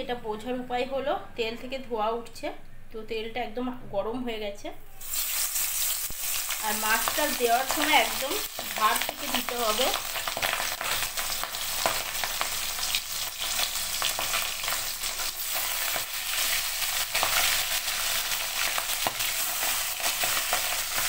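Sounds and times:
fish sizzling in hot oil: 5.0s - 21.0s
oil crackling and popping: 5.0s - 21.0s.

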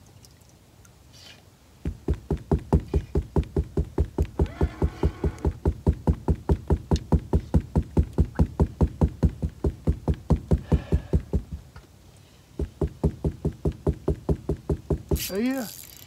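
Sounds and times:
fishing reel cranking: 15.2s - 16.0s.

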